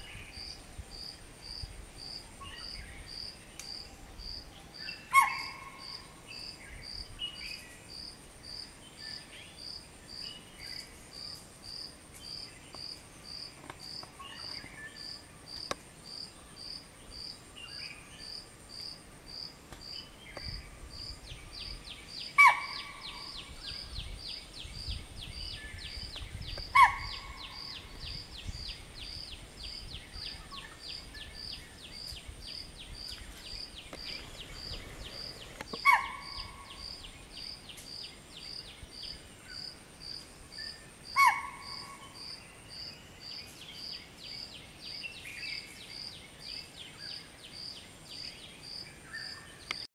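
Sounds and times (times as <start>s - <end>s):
insects chirping: 0.0s - 49.9s
deer alarm calls: 35.8s - 36.5s, 41.2s - 41.8s.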